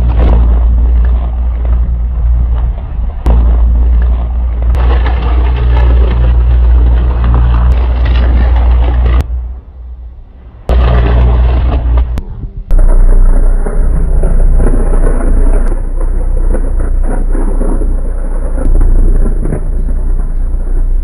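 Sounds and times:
electrical arc crackling: 10.6s - 21.0s.

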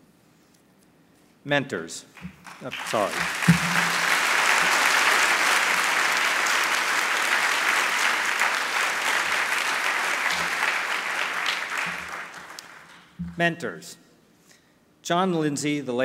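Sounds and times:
audience applauding: 2.2s - 13.2s.

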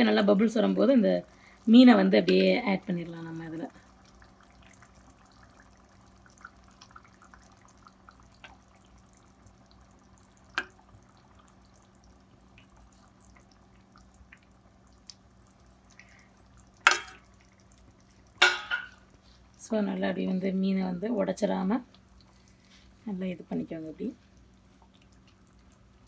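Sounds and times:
curry bubbling and popping: 0.0s - 26.0s
spatula knocking on pan: 18.4s - 19.0s.

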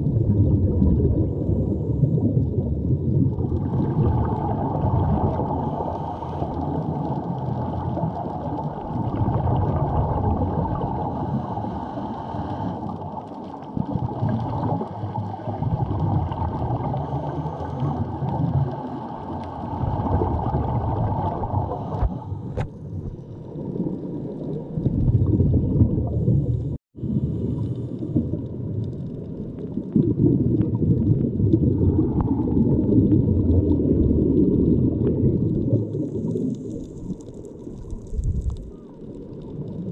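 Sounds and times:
muffled underwater rushing water: 0.0s - 39.9s.

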